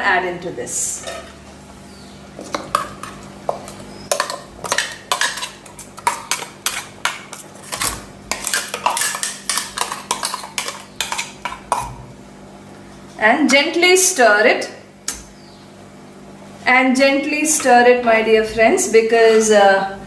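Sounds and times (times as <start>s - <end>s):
metal spoon scraping metal bowl: 4.1s - 12.0s.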